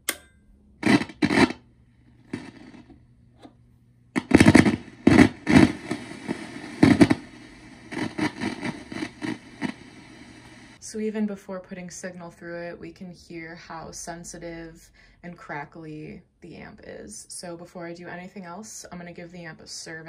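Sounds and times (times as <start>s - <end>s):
low amp hum: 0.0s - 10.9s
amp crackling and popping: 0.8s - 10.8s.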